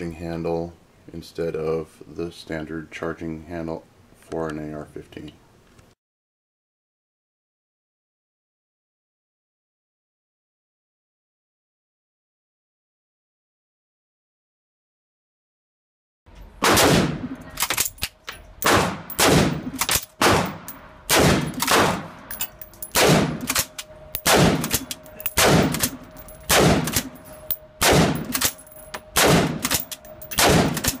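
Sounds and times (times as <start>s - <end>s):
gunshot echoes: 16.6s - 17.4s, 18.6s - 22.2s, 22.9s - 27.2s, 27.8s - 28.4s, 29.2s - 29.8s, 30.4s - 31.0s
rifle firing single shots: 16.6s - 17.9s, 18.6s - 22.2s, 22.9s - 27.2s, 27.8s - 28.6s, 29.2s - 31.0s.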